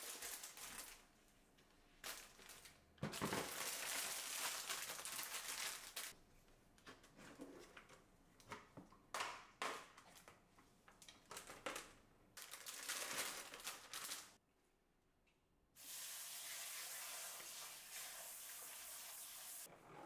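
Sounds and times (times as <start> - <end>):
plastic packaging crinkling: 0.0 - 1.1, 2.0 - 6.1, 11.2 - 14.4.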